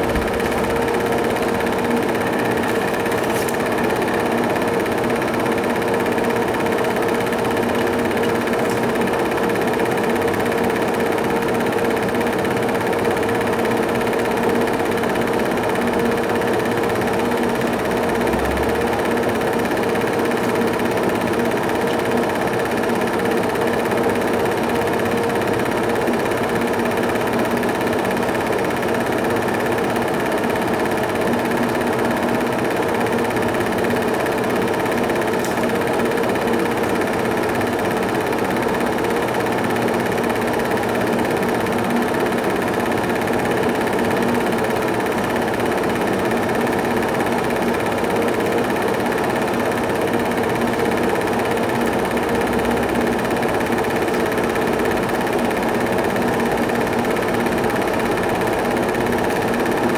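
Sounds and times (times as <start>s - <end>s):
film projector whirring: 0.0s - 59.9s.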